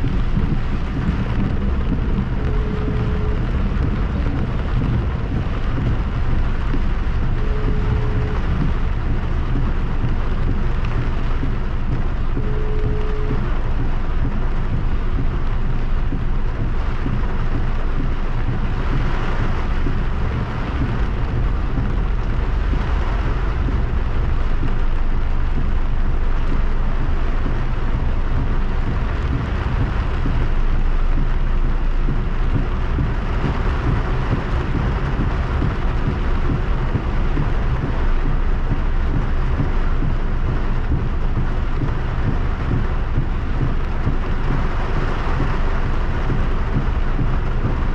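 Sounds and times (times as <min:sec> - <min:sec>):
car rumbling on wet road: 0:00.0 - 0:47.9
heavy rain on car roof: 0:00.0 - 0:47.9.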